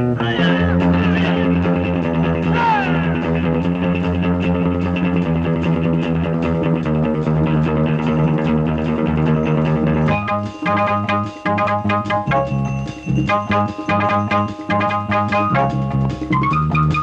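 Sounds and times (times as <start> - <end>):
instrumental song with guitar and bass: 0.0 - 17.0.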